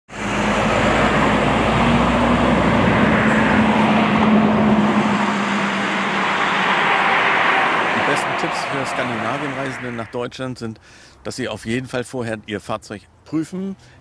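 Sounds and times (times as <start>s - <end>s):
traffic rushing past: 0.1s - 10.3s
steady hum: 2.9s - 10.2s.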